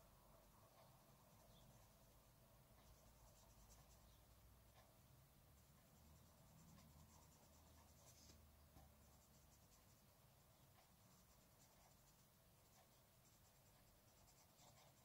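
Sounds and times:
pencil scratching on paper: 2.8 - 4.9, 5.6 - 15.0.

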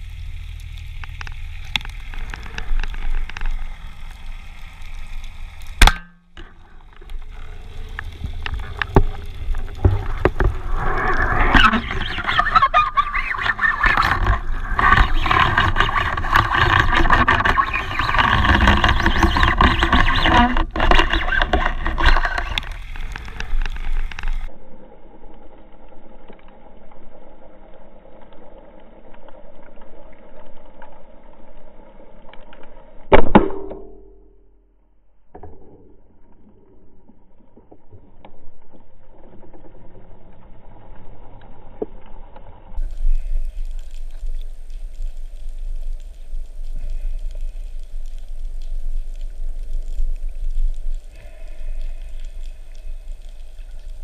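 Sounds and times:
underwater water crackle and rush: 0.0 - 33.5, 35.2 - 54.0
low hum: 33.1 - 54.0.

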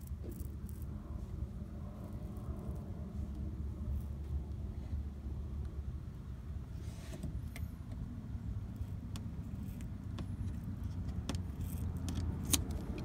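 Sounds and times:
steady low rumble: 0.0 - 13.0
scissors snipping rubber: 8.9 - 13.0.

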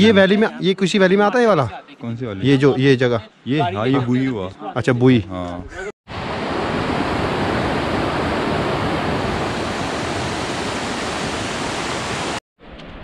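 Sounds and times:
stream rushing over boulders: 6.1 - 12.4
wind noise on microphone: 6.1 - 13.0.

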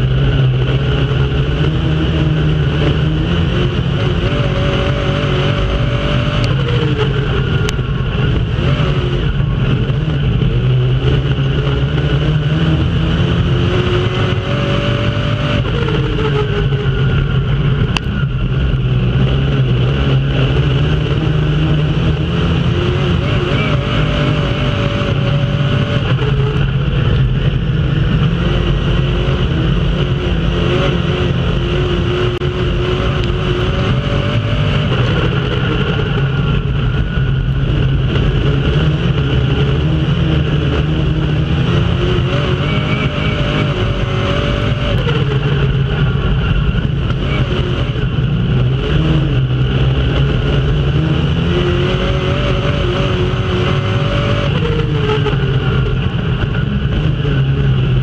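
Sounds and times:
noisy rush: 0.0 - 58.0
race car engine: 0.0 - 58.0.

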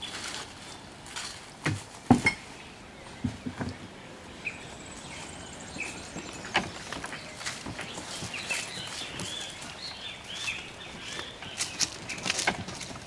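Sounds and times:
knocks and handling clatter: 3.1 - 3.8, 6.1 - 9.5, 11.5 - 13.0.

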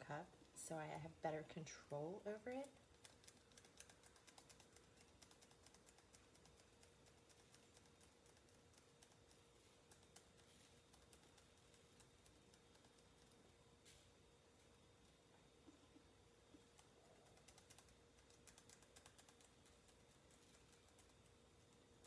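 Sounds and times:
faint steady hum: 0.0 - 22.0
faint irregular small clicks: 2.6 - 13.4, 16.5 - 22.0.

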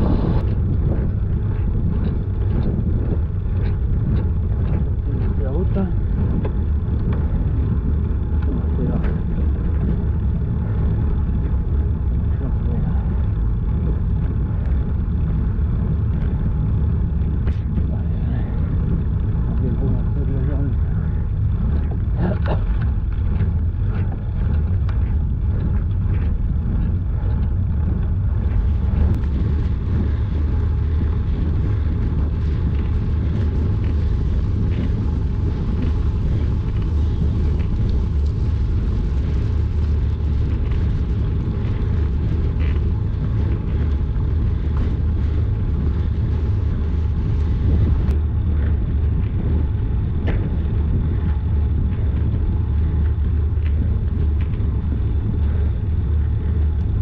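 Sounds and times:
road noise: 0.0 - 57.0
wind buffeting microphone: 0.0 - 57.0.

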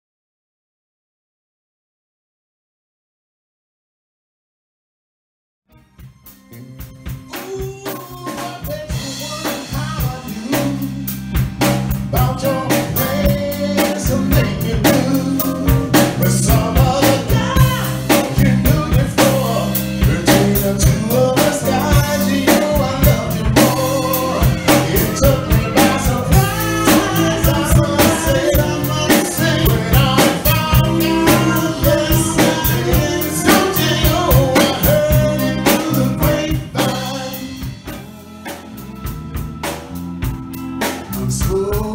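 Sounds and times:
bass guitar: 5.7 - 41.9
keyboard: 5.7 - 41.9
drum kit beat: 5.8 - 41.9
electric guitar: 5.8 - 41.9
person singing: 6.4 - 11.2, 12.0 - 39.1, 41.0 - 41.9.

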